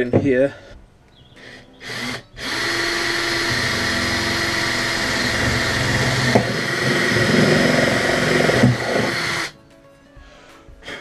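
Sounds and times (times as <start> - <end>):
cordless drill boring through metal: 1.4 - 9.6.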